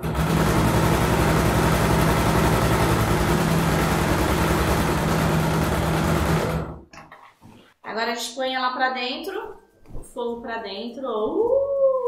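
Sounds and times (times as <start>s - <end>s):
sewing machine running: 0.0s - 6.8s.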